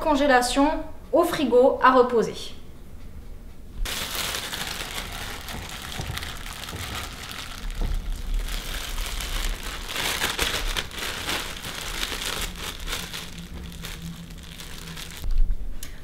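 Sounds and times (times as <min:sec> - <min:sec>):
plastic bag crinkling: 0:03.9 - 0:15.3.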